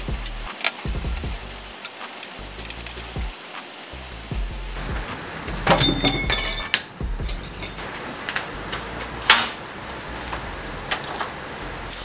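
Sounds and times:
background music: 4.0 - 10.9
metallic clinking: 4.8 - 9.4
spanner tapping on metal: 5.5 - 7.9.

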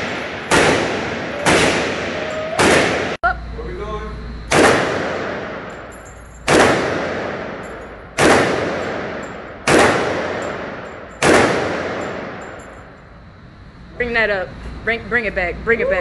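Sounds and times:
rifle shots echoing: 0.0 - 3.2, 4.5 - 12.8.

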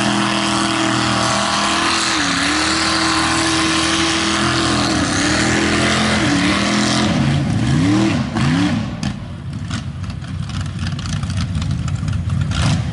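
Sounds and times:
mud and water spraying: 0.0 - 8.7
truck engine revving: 0.0 - 10.3.

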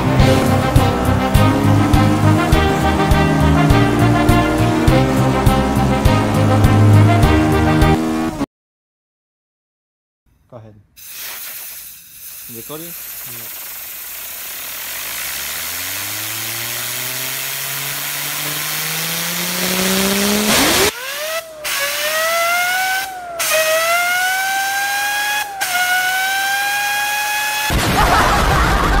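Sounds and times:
engine whine climbing in pitch: 0.0 - 8.4, 13.6 - 27.8
hiss: 11.0 - 19.7
loud burst of noise: 11.1 - 29.0.

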